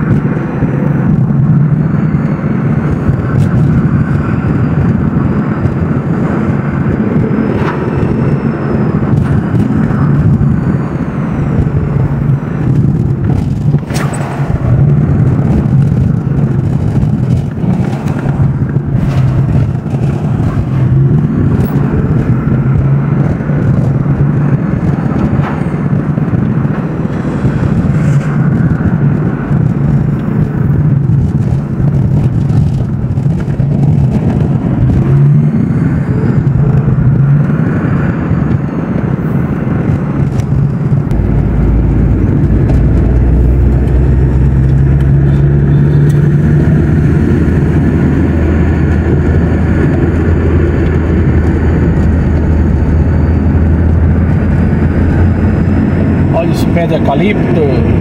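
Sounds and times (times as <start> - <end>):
car engine and road noise drone: 0.0 - 58.0.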